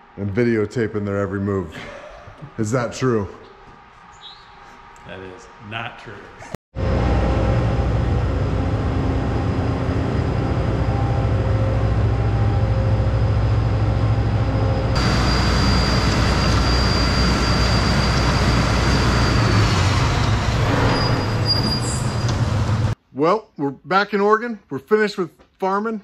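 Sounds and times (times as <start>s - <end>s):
diesel engine rumbling: 6.8s - 23.0s
high whine: 6.8s - 23.0s.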